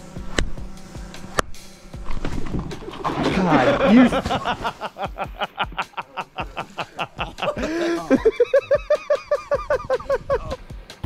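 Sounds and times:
high-pitched cackling: 2.8s - 10.6s
people laughing hard: 2.8s - 10.6s.

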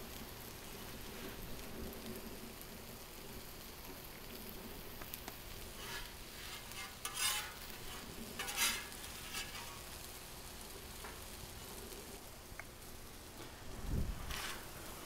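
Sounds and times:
food sizzling on griddle: 0.0s - 15.0s
metal spatula scraping griddle: 5.5s - 10.2s, 14.2s - 15.0s.

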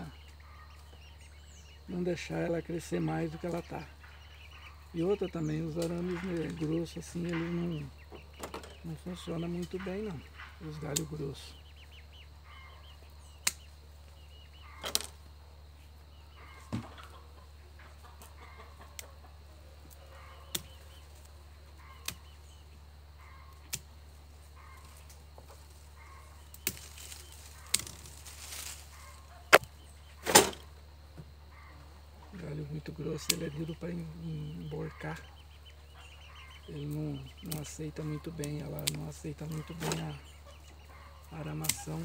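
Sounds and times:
hens clucking faintly: 0.0s - 42.0s
hand shears snipping branches: 13.4s - 13.6s, 21.9s - 22.3s, 23.6s - 23.9s, 26.5s - 29.7s, 38.4s - 40.0s, 41.5s - 42.0s.

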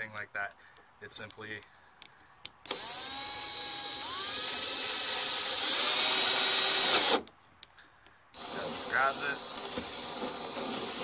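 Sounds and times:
drill motor whine: 2.7s - 7.2s, 8.4s - 11.0s.

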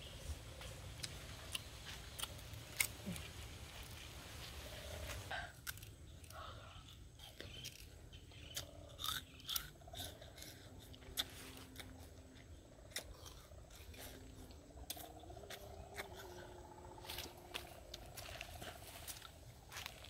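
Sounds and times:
sugarcane crunching while chewed: 0.5s - 20.0s.

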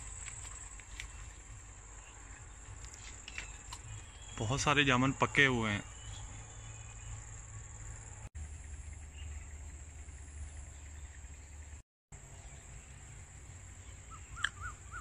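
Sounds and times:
insects chirring: 0.0s - 11.8s.

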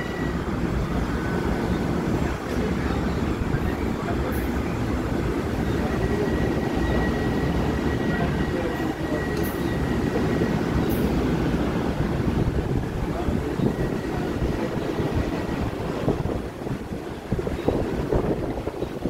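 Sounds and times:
faint high whine: 0.0s - 11.3s
train wheels rumbling on rails: 0.0s - 19.0s.

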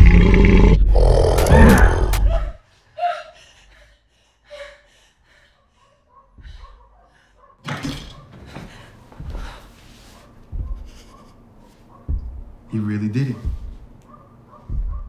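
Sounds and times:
man roaring: 0.0s - 2.5s
woman gasping and sobbing: 2.1s - 5.7s
soft thumps onto a sofa: 8.3s - 12.7s, 13.4s - 14.0s, 14.6s - 15.0s.

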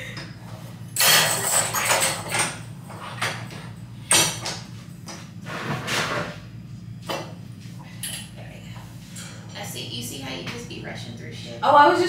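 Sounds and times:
steady low hum: 0.0s - 12.0s
metal bar and springs clanking: 1.0s - 3.5s.

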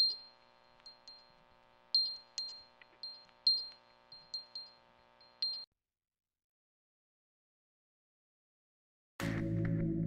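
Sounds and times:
high bell-like pings: 0.0s - 5.7s.

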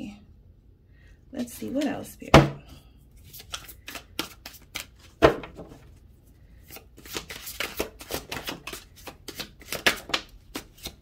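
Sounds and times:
cards riffling: 3.2s - 5.6s, 6.6s - 11.0s.

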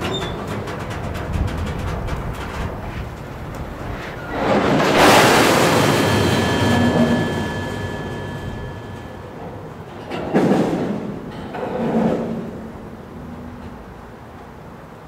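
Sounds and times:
freight train rumbling and clanking: 0.0s - 15.0s
thin steady whine: 4.9s - 9.8s.

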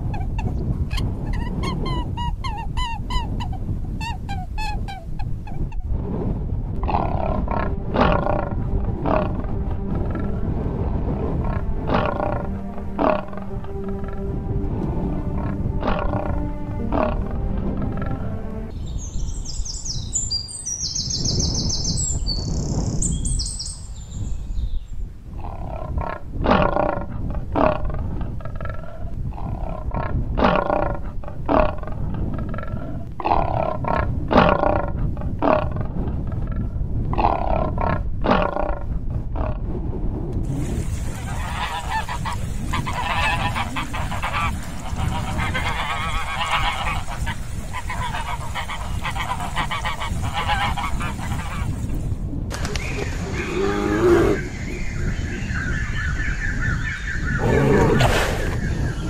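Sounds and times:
harsh animal calls: 6.8s - 10.4s, 11.4s - 18.7s, 41.2s - 51.8s, 57.3s - 58.6s
swans honking: 6.9s - 18.8s, 41.1s - 51.8s.

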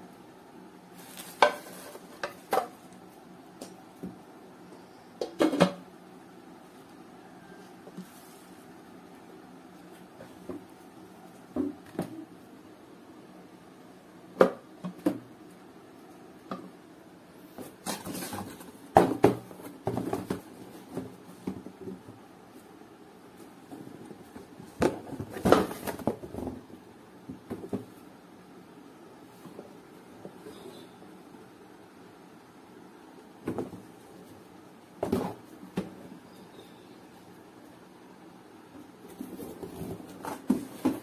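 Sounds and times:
scraping rustles: 1.0s - 2.9s, 17.5s - 18.8s.

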